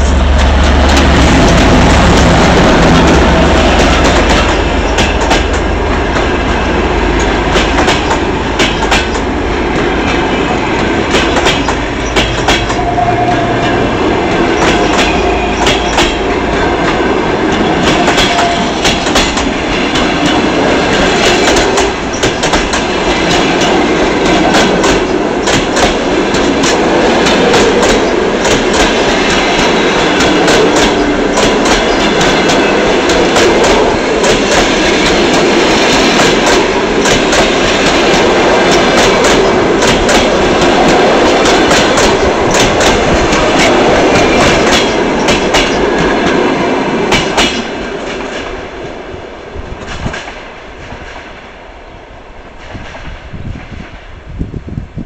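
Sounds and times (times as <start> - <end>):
steady rolling rumble: 0.0 - 15.6
train wheels clicking over rail joints: 0.0 - 46.4, 47.0 - 48.6
diesel locomotive drone: 0.0 - 55.0.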